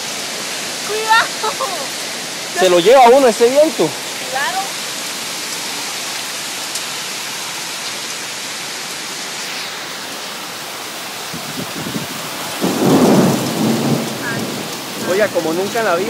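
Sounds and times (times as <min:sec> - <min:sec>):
hail and heavy rain: 0:00.0 - 0:16.0
low rumbling wind gusts: 0:10.1 - 0:16.0.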